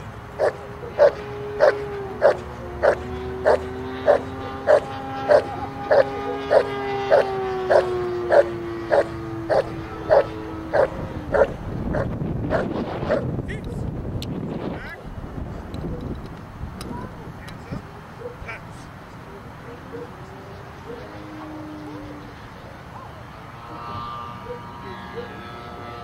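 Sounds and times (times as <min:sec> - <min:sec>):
steady low hum: 0:00.0 - 0:26.0
dog barking: 0:00.4 - 0:13.2, 0:18.2 - 0:18.6, 0:19.6 - 0:20.2, 0:24.4 - 0:25.3.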